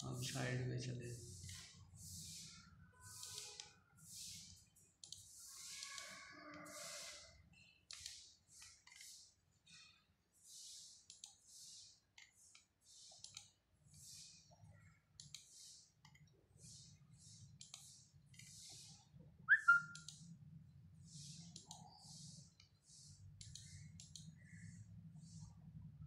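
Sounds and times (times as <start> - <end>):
finger rubbing laptop touchpad: 1.3 - 4.6
small clicks: 12.2 - 13.5, 23.4 - 24.3
sharp falling chirp: 19.5 - 20.0.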